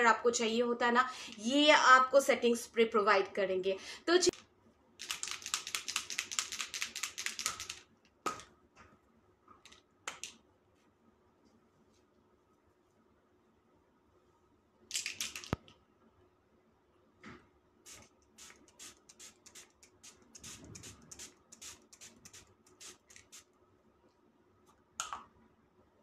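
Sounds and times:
spray bottle hissing: 17.9 - 23.5.

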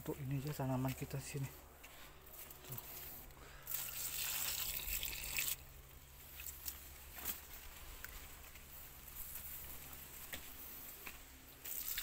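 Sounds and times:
water splashing onto plants: 3.7 - 5.6, 11.6 - 12.0.

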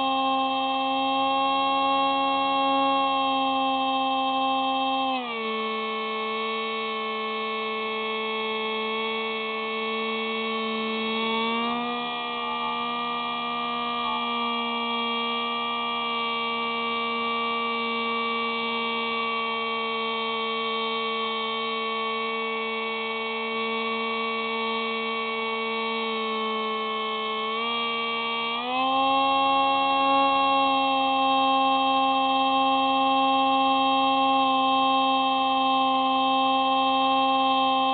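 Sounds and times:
electric motor and propeller whine: 0.0 - 37.9.

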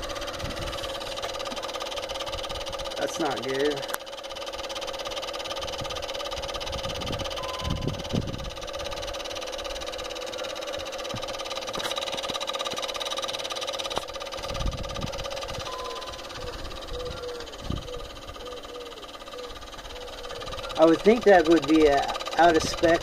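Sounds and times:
cooler fan humming: 0.0 - 23.0
short high beep: 7.4 - 8.0, 15.7 - 16.2.

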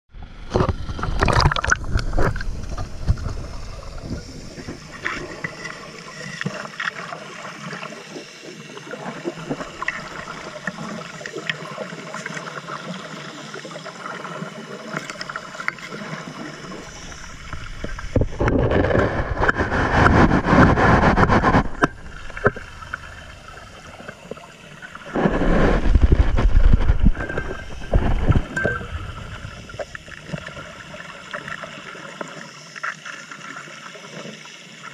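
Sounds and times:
water splashing and sloshing: 0.2 - 34.9
underwater clicks and knocks: 0.4 - 5.7, 17.0 - 23.1, 25.1 - 30.0.

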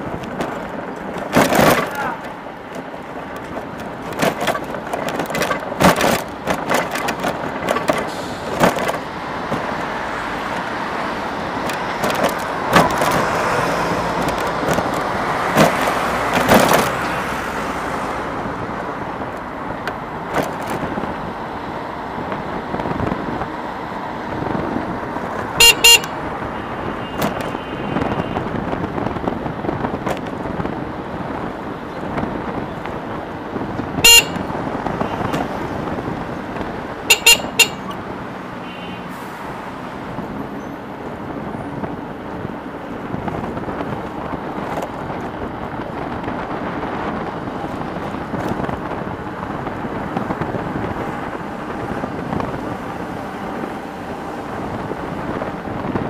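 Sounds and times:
sharp knocks and bumps: 0.0 - 9.8
road and wind noise: 0.0 - 56.0
vehicle horn toot: 25.6 - 28.4, 34.0 - 35.5, 37.1 - 38.0, 38.6 - 39.1.

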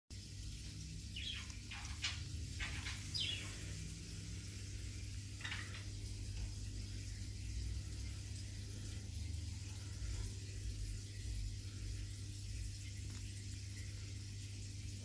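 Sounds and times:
aquarium equipment hum: 0.1 - 15.0
bird chirps: 1.1 - 3.7.

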